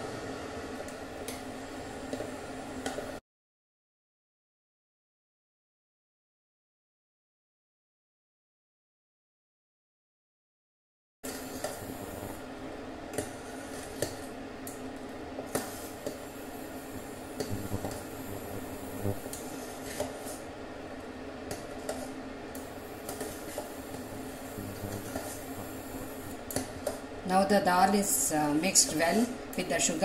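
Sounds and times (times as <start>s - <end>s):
cooktop hum: 0.0s - 3.2s, 11.2s - 30.0s.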